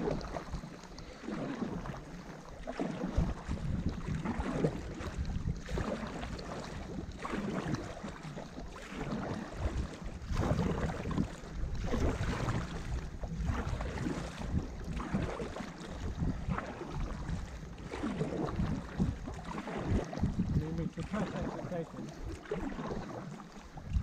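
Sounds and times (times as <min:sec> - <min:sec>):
paddles pulling through water: 0:00.0 - 0:24.0
wind rumbling on microphone: 0:00.0 - 0:24.0.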